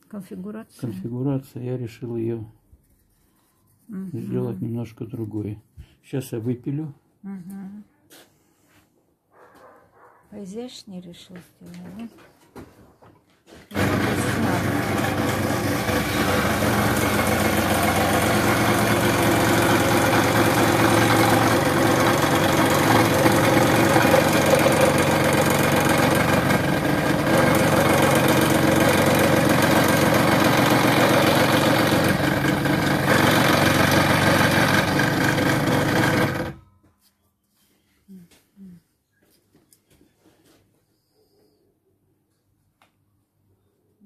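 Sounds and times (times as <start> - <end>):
scroll saw cutting wood: 13.7 - 36.6.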